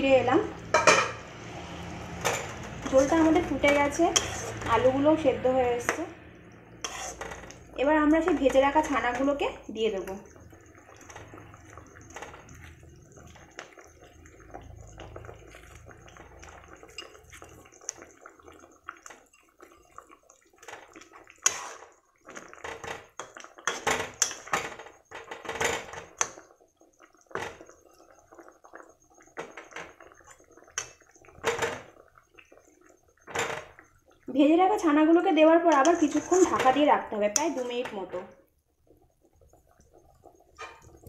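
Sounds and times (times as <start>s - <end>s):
spatula scraping cooking pan: 0.7s - 6.0s, 6.6s - 9.4s, 10.3s - 32.0s, 35.5s - 38.1s.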